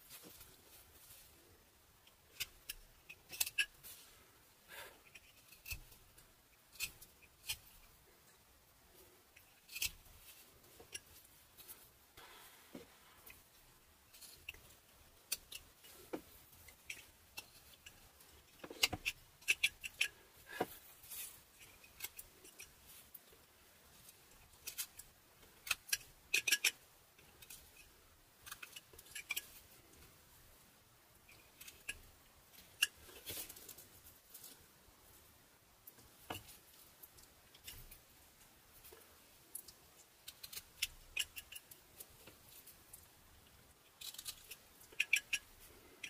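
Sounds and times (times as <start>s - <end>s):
knife cutting and scraping wood: 2.1s - 4.0s, 5.0s - 7.9s, 9.4s - 13.5s, 14.1s - 23.3s, 24.1s - 30.0s, 40.2s - 43.0s, 43.8s - 46.0s.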